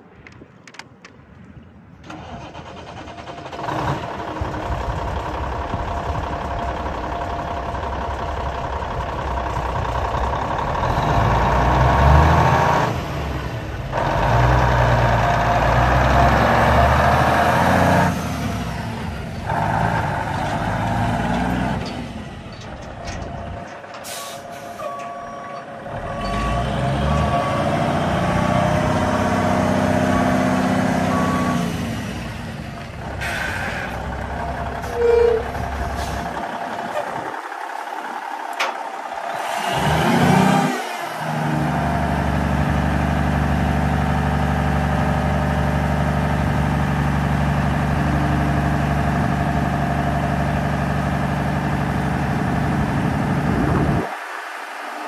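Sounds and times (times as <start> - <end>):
diesel truck engine running: 2.1 - 55.0
reversing alarm beeping: 24.1 - 28.3, 30.0 - 31.6.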